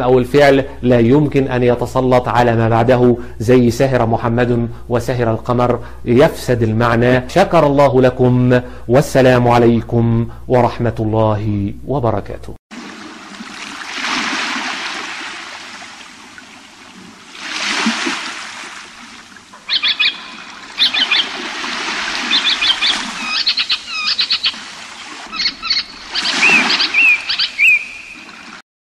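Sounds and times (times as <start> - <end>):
waves washing in: 12.7 - 28.6
small birds chirping: 19.6 - 21.5, 22.1 - 24.6, 25.3 - 28.3.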